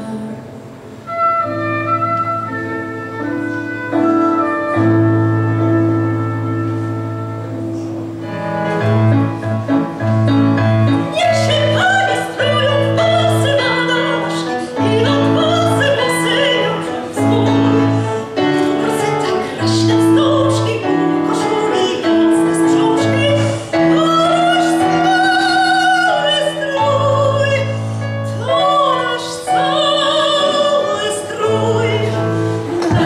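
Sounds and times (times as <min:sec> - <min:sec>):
woman singing into microphone: 0:00.0 - 0:00.8, 0:10.9 - 0:33.0.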